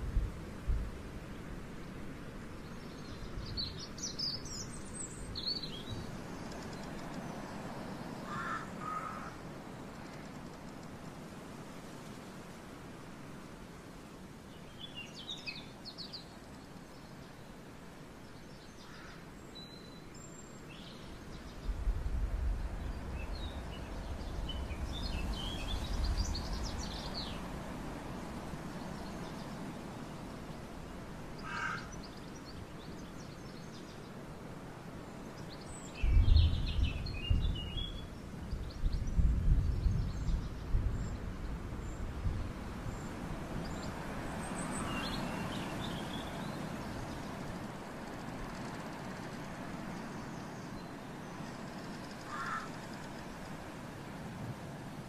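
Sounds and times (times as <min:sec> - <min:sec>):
small birds chirping: 0:02.6 - 0:11.0, 0:18.2 - 0:34.2, 0:35.1 - 0:53.7.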